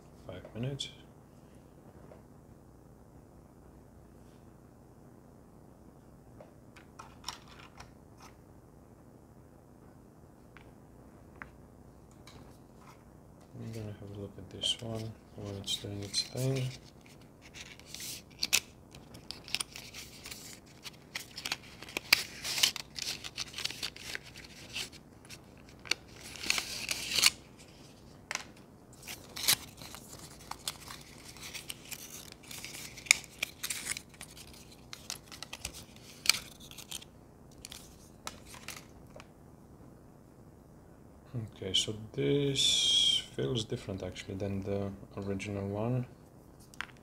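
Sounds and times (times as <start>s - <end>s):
plastic packaging rustling: 14.6s - 39.2s
plastic tearing or snipping: 16.4s - 27.4s, 29.0s - 38.6s.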